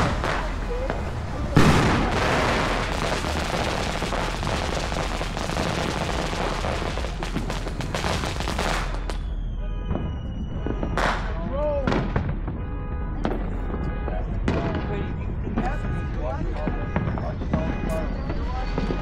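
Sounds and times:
firework crackling: 0.0s - 12.6s.

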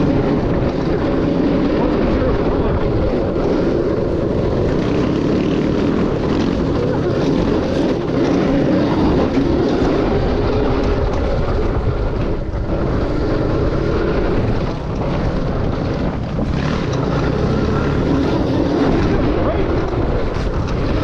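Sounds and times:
dirt bike engine running: 0.0s - 21.0s
wind on microphone: 0.0s - 21.0s.

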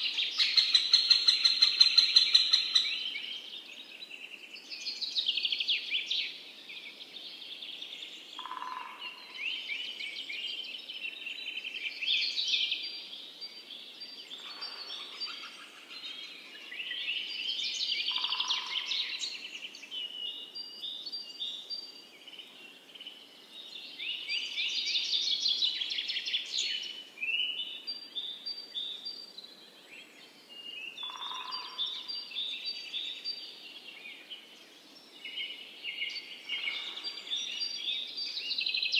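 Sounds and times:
small birds chirping and trilling: 0.0s - 38.9s.

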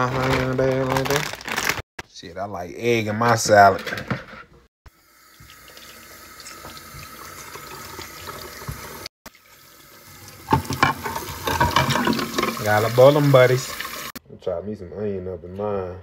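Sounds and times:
tap water running into saucepan: 5.0s - 14.2s.

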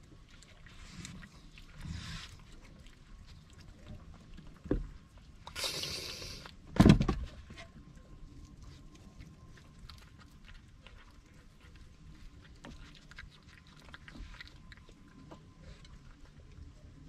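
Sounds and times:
cat hissing: 5.6s - 6.5s.

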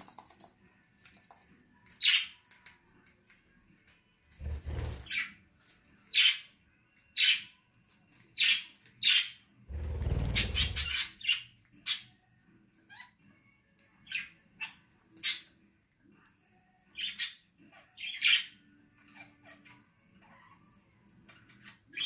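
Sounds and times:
parakeets calling: 4.6s - 5.3s, 10.0s - 12.1s, 16.9s - 20.5s.

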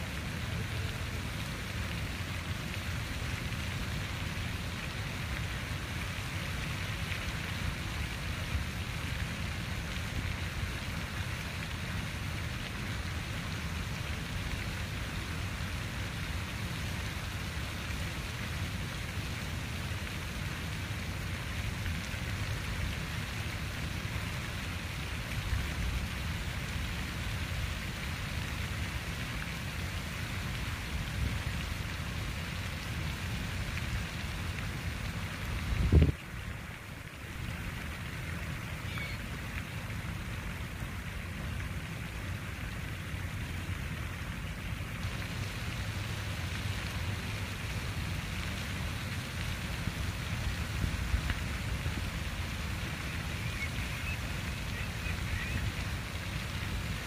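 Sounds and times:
water fountain splashing: 0.0s - 57.0s.

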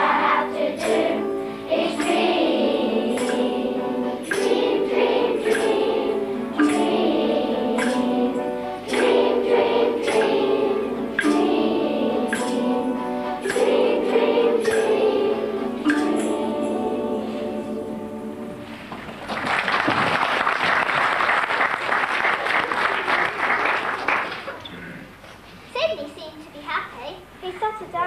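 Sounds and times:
children's choir singing: 0.0s - 19.9s
audience applauding: 18.8s - 24.6s.

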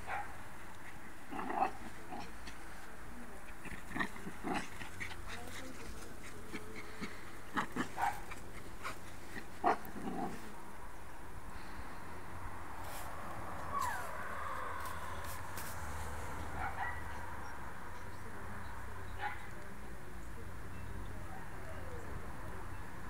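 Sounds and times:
small dogs yapping: 13.6s - 15.4s.

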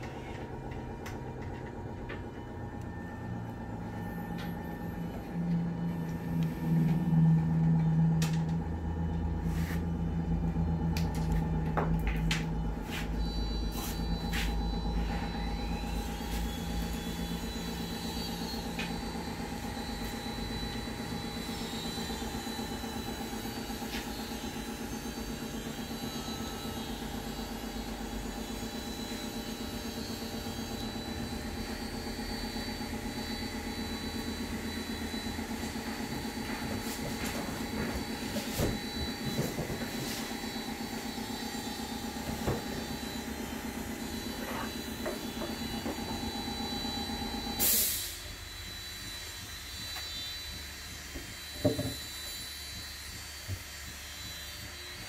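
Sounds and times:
low rumble with hum: 0.0s - 26.2s.

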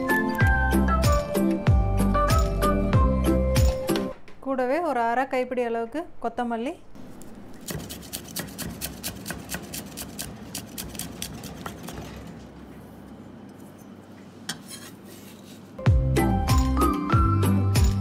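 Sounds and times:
knife chopping on wooden board: 7.6s - 11.0s.

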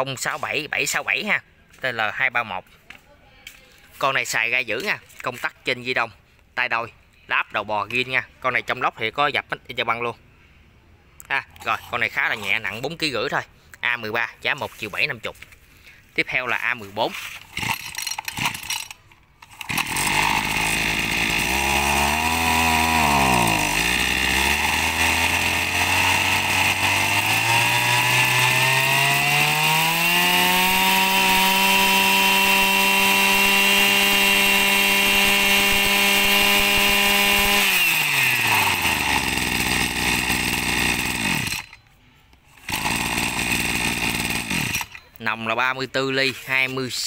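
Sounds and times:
brush cutter engine revving: 11.5s - 13.1s, 16.2s - 41.8s, 42.5s - 45.2s.

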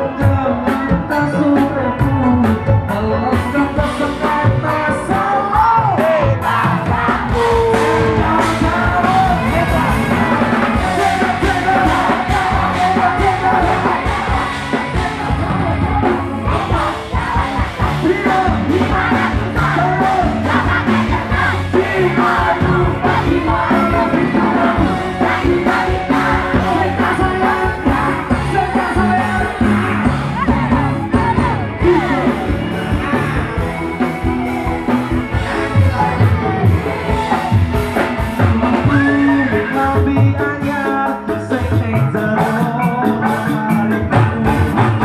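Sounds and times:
drum kit: 0.0s - 45.0s
electric guitar: 0.0s - 45.0s
person singing: 0.0s - 45.0s
crowd shouting along: 5.4s - 40.0s.

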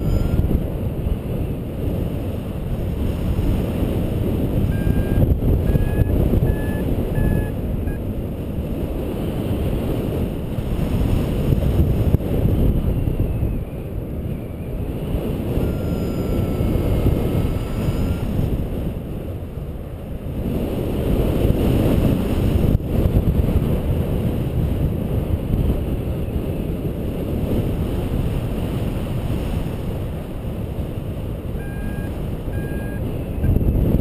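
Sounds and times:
short beeps: 0.0s - 0.5s, 4.6s - 8.0s, 15.6s - 18.4s, 31.5s - 33.6s
variometer wavering tone: 0.0s - 8.2s, 12.6s - 19.0s, 31.5s - 34.0s
wind rushing over microphone: 0.0s - 34.0s.

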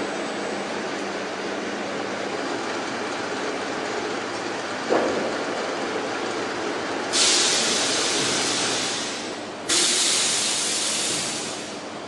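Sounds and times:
timber processing machine running: 0.0s - 12.0s
hissing air bursts: 7.1s - 11.8s.

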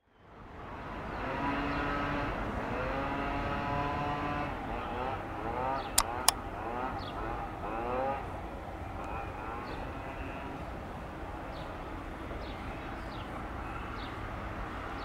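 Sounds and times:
sharp clicks: 5.9s - 6.4s.

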